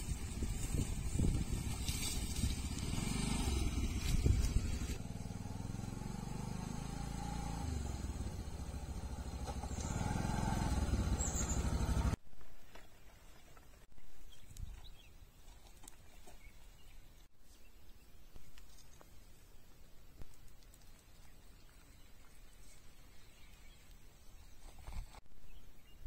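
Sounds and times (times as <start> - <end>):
small motorcycle engine running: 0.0 - 12.2.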